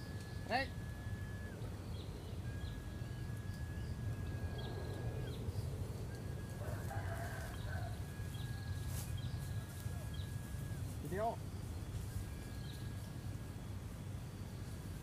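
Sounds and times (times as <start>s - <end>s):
rooster crowing in the distance: 4.4s - 10.8s.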